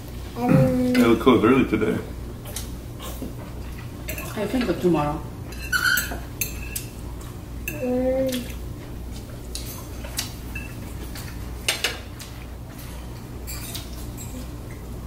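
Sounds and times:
cutlery clinking on plates: 5.5s - 6.9s, 9.6s - 12.1s, 12.8s - 14.5s.

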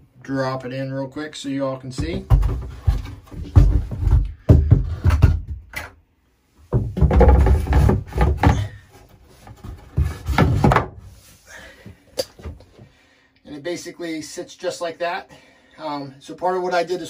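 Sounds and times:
wooden cradle knocking and thudding: 2.0s - 5.9s, 6.7s - 8.8s.

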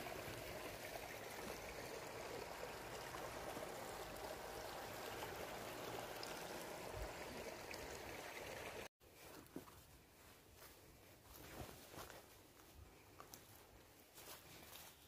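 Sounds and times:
stream rushing and gurgling: 0.0s - 8.9s.

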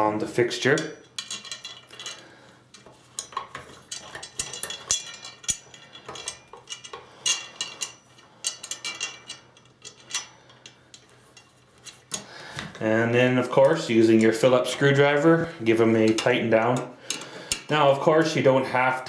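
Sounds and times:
small metallic clicks and scrapes: 0.6s - 12.3s.

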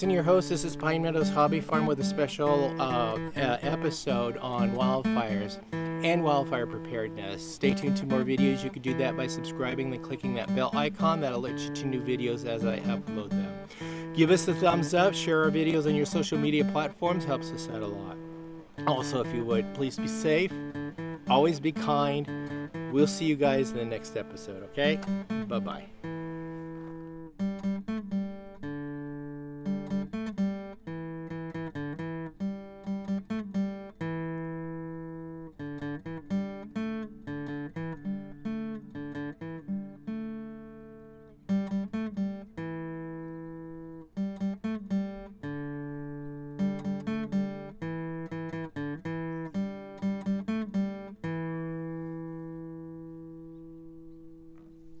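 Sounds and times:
solo acoustic guitar: 0.0s - 55.0s.

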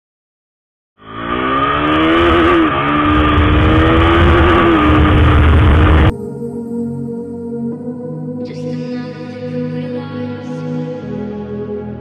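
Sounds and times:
motorcycle engine: 1.0s - 6.1s
wind rumble on microphone: 3.0s - 6.1s.

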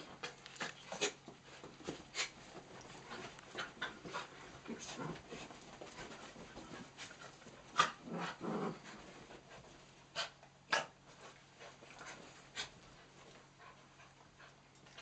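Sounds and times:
dogs panting: 0.0s - 7.9s, 11.1s - 15.0s
dog play growl: 0.0s - 9.4s.

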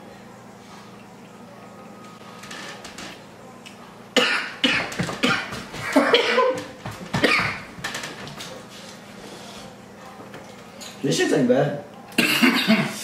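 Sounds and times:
person coughing harshly: 4.2s - 7.6s, 12.2s - 13.0s.

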